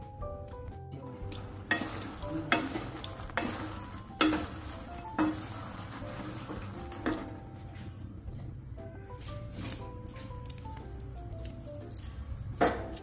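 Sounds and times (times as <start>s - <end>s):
spatula stirring seeds in pan: 1.3s - 7.4s.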